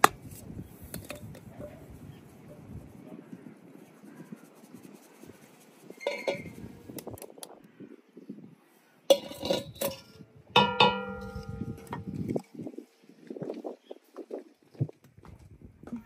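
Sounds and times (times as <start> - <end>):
metal sieve and pan clanking: 6.0 - 6.5, 9.1 - 12.1.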